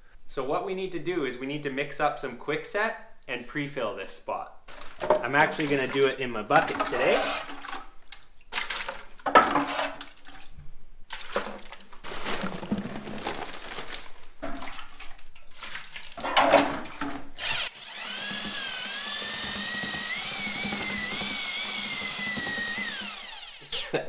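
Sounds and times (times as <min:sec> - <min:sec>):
handling noise: 0:12.0 - 0:14.9
drill motor whine mixing: 0:17.4 - 0:23.8.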